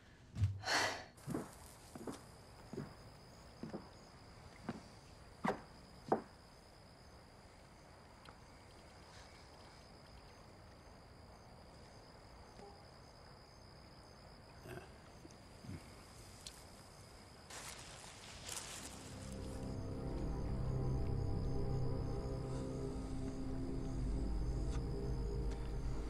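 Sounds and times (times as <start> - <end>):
insect chirring: 1.2 - 26.0
music: 18.8 - 26.0.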